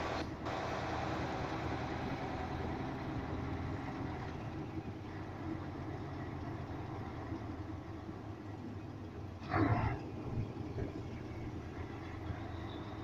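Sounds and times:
lorry engine running low: 0:00.0 - 0:13.0.

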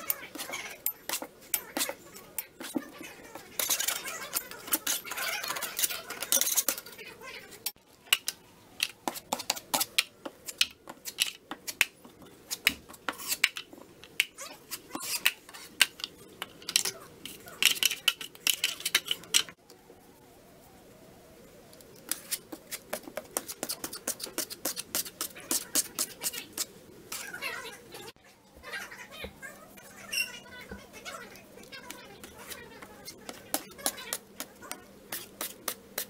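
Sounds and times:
knife spreading compound on wall: 0:08.9 - 0:13.6, 0:22.1 - 0:27.4.

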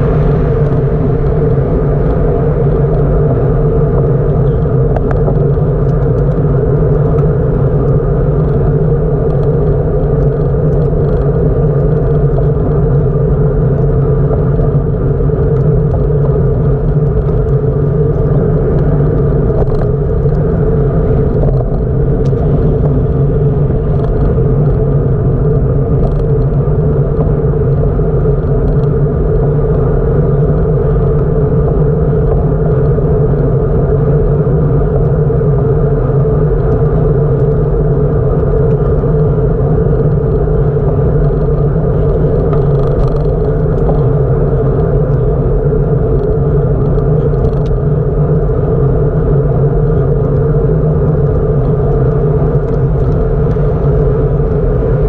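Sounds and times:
bicycle road noise: 0:00.0 - 0:55.0.

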